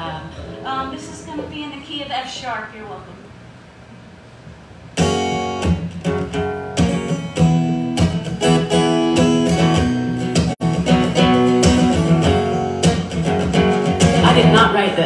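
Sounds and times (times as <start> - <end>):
acoustic guitar strumming chords: 5.0 - 15.0.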